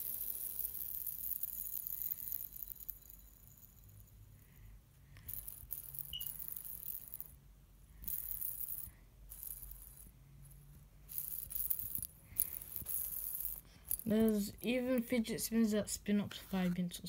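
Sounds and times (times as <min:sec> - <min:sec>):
fidget spinner rattling: 0:00.0 - 0:04.6, 0:05.2 - 0:10.2, 0:11.0 - 0:16.2.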